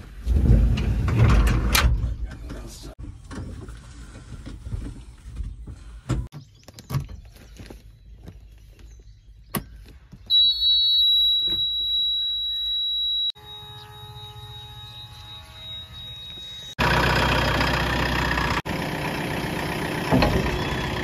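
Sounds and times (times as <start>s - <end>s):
high-pitched warning beep: 10.3s - 16.8s
low engine hum: 13.4s - 21.0s.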